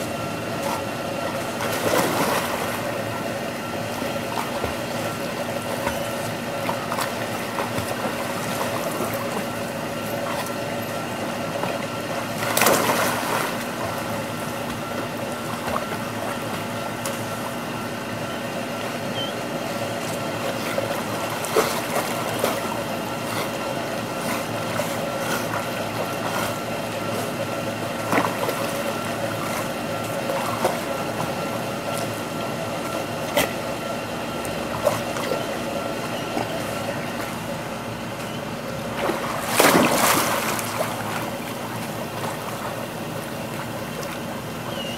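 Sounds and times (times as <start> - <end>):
steady hum: 0.0 - 44.9
water splashing and sloshing: 0.0 - 44.9.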